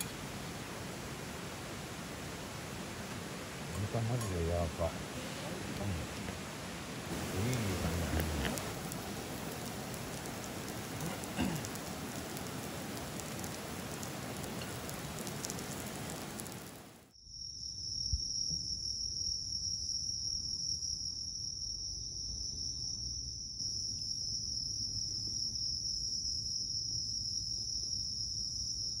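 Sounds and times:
crickets chirping: 0.0 - 29.0
meat sizzling in a skillet: 7.1 - 17.0.

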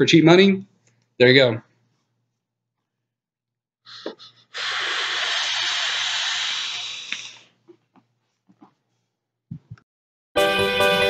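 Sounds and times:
breathy vape hiss: 3.9 - 7.6
short breaths: 3.9 - 7.6.

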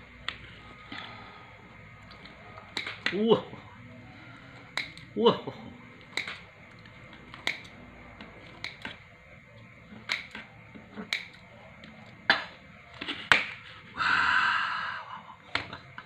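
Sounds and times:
scissors snipping pizza crust: 2.1 - 3.2, 4.6 - 5.1, 6.0 - 9.0, 9.9 - 13.6.

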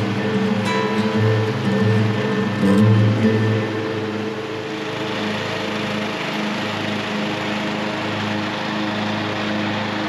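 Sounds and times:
lawn mower engine hum: 0.0 - 10.0.

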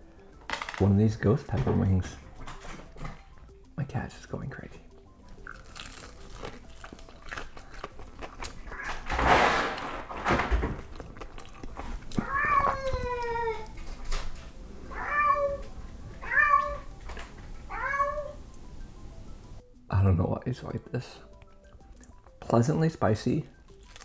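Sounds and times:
crunching and chewing food: 4.9 - 14.6, 23.4 - 24.0
cat meowing: 8.7 - 9.1, 12.1 - 13.8, 14.9 - 16.9, 17.7 - 18.4.

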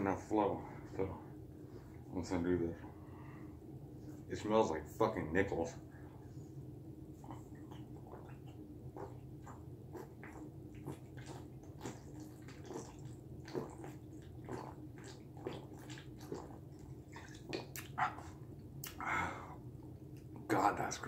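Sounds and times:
person breathing out: 19.0 - 19.6.

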